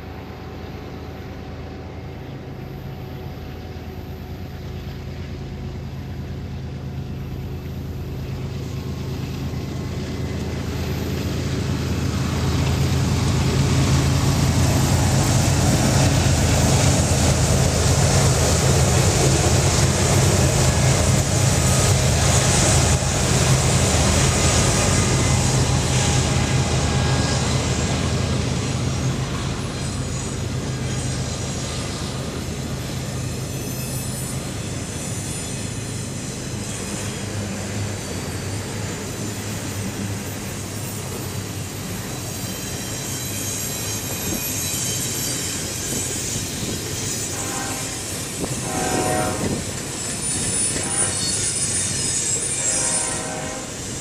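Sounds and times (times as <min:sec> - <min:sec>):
locomotive engine drone: 0:00.0 - 0:54.0
train wheels rumbling on rail: 0:00.0 - 0:54.0
thin wheel squeal: 0:29.0 - 0:54.0.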